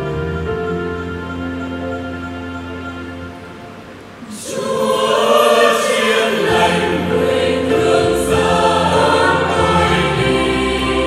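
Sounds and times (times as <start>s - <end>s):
electronic keyboard accompaniment: 0.0s - 11.0s
choir singing a hymn: 4.2s - 11.0s.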